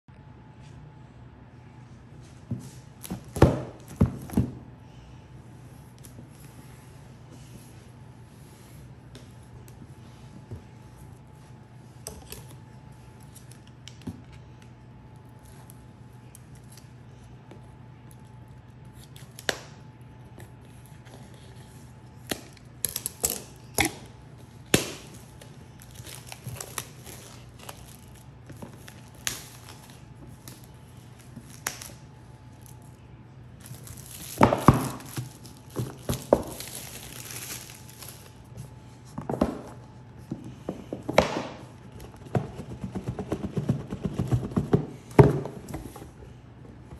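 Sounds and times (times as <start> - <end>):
plastic shrink wrap crinkling: 24.8 - 32.9, 33.6 - 38.5.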